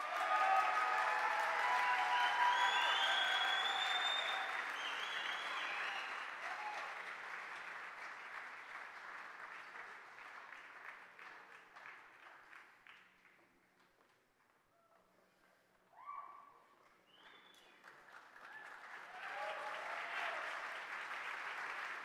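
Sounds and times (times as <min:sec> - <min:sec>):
shouts from audience: 0:00.0 - 0:04.6, 0:18.5 - 0:20.6
large audience applauding: 0:00.0 - 0:13.4, 0:17.2 - 0:22.0.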